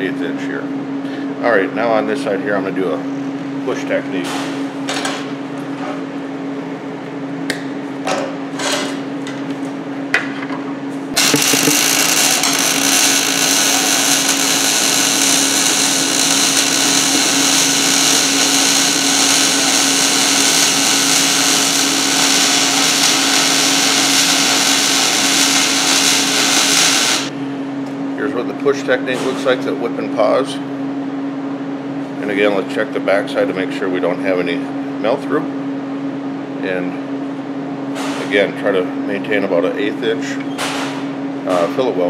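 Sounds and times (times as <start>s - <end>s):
welding arc crackling buzz: 11.1s - 27.4s.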